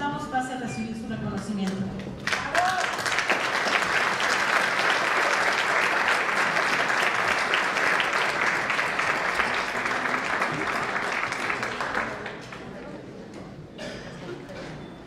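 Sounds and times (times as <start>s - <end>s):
audience applauding: 2.2s - 12.8s.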